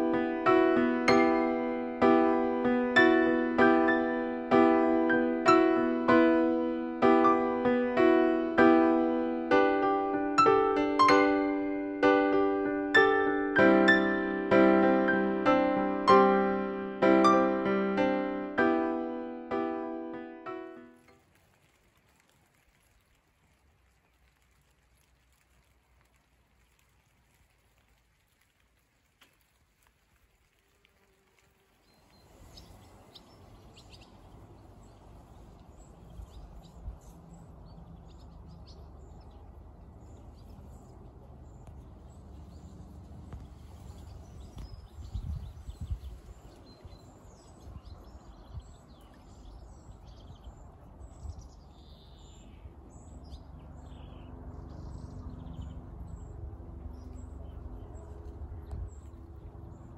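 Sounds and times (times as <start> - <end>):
wind rumble on microphone: 21.0 - 59.9
bird chirps and calls: 31.9 - 39.5.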